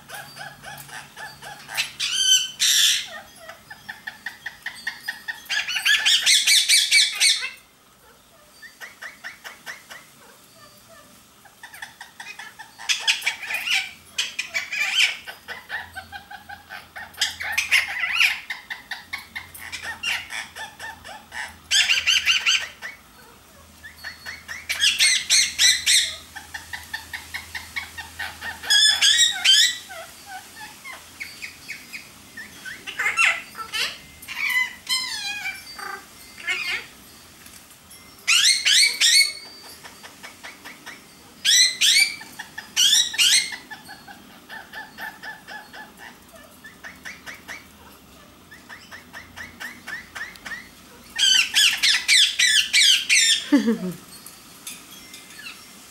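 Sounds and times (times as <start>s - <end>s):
parakeets calling and chattering: 0.0s - 55.9s.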